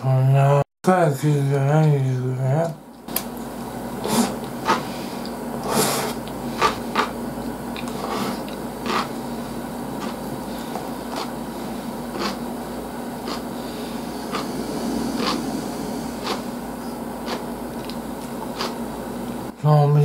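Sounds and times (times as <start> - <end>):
steady low hum: 0.0 - 20.0
person chewing with wet smacks: 6.2 - 9.1, 17.2 - 18.8.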